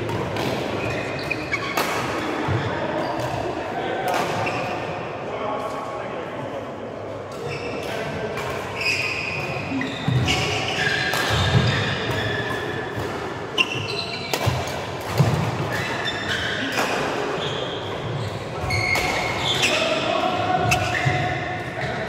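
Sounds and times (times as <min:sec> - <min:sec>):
rackets hitting shuttlecock: 0:00.0 - 0:02.3, 0:09.4 - 0:16.0
shoes squeaking on court floor: 0:00.8 - 0:03.4, 0:07.4 - 0:08.0, 0:08.7 - 0:14.6, 0:17.4 - 0:20.0, 0:20.6 - 0:22.0.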